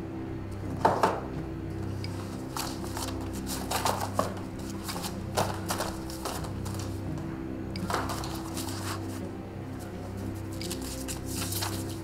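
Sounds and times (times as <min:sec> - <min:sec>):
background music: 0:00.0 - 0:12.0
paper pages rustling: 0:01.8 - 0:07.0, 0:07.8 - 0:09.2, 0:09.8 - 0:12.0.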